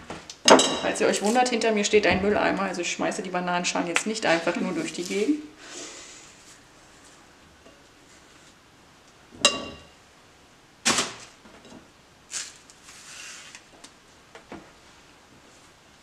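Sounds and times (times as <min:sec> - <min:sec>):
soft rustling: 0:04.0 - 0:05.5.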